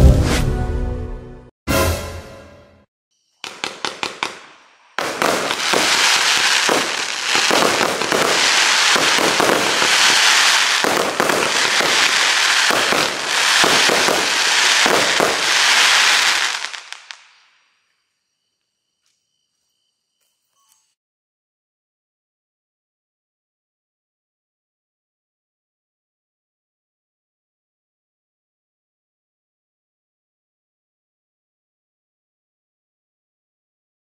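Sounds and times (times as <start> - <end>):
firework crackle: 3.3 - 17.7
firework sharp reports: 3.4 - 17.7.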